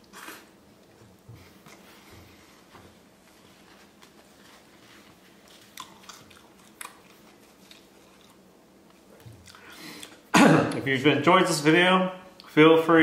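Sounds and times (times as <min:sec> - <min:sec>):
chewing crisp food: 0:04.0 - 0:10.3.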